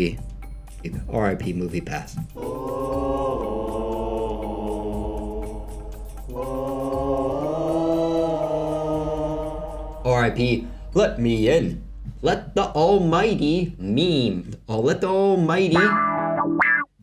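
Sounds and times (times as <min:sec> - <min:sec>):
low chant-like singing: 0:02.3 - 0:11.7.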